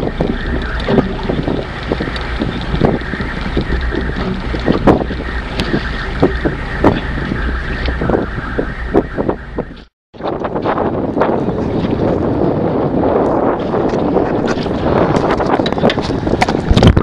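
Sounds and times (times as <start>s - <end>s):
irregular knocks and thumps: 0.0s - 9.9s
steady low hum: 0.0s - 9.9s
wind buffeting microphone: 0.0s - 17.0s.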